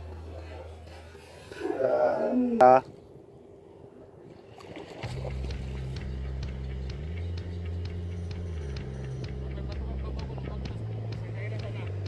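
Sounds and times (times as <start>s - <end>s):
deep bass line: 5.0s - 12.0s
ticking beat: 5.3s - 12.0s.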